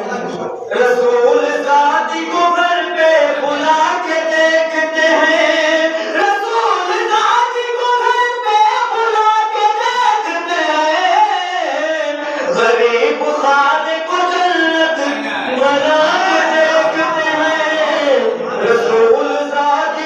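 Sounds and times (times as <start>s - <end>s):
man singing into a microphone: 0.0s - 20.0s.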